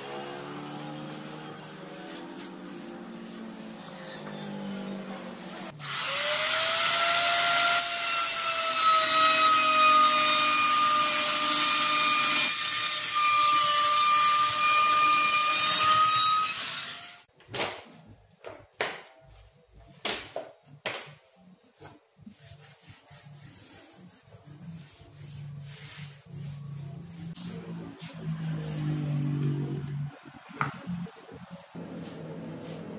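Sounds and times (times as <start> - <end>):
sanding block rubbing: 0.8 - 5.8, 21.7 - 29.4.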